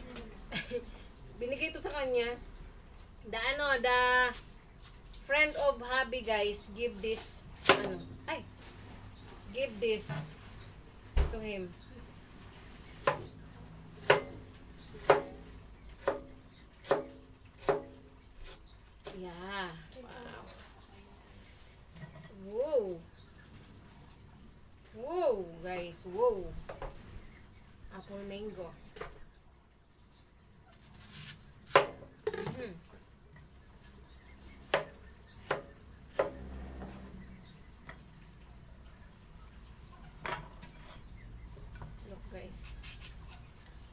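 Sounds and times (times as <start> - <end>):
cleaver chopping on cutting board: 14.0 - 14.4, 15.0 - 15.4, 16.0 - 17.9
knife chopping onto plastic board: 15.0 - 15.4.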